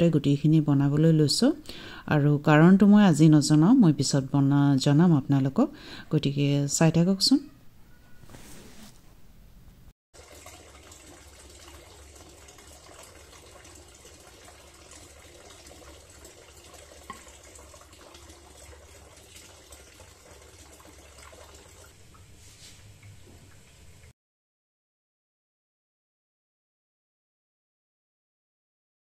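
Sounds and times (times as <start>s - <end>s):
water boiling in a kettle: 10.2s - 24.1s.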